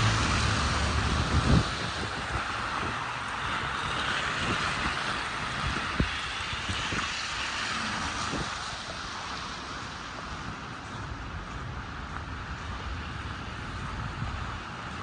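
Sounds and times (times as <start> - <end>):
traffic hiss on wet street: 0.0 - 15.0.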